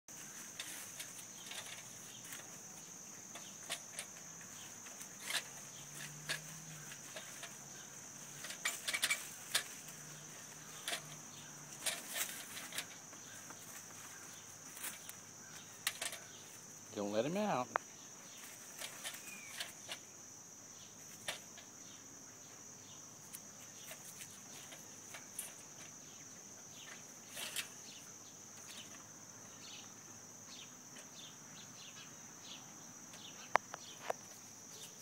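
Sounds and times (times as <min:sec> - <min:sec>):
insects droning: 0:00.1 - 0:35.0
wire cage clicks and rattles: 0:00.5 - 0:02.6, 0:03.3 - 0:07.6, 0:08.4 - 0:13.0, 0:14.7 - 0:16.4, 0:18.6 - 0:20.0, 0:23.8 - 0:26.0, 0:26.9 - 0:27.8.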